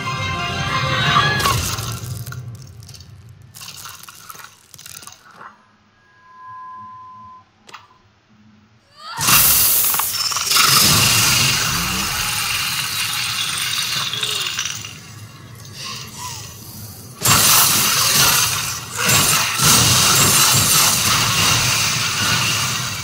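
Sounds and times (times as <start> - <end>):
ice shattering into shards: 1.5 - 5.4, 9.2 - 16.1, 17.2 - 23.0.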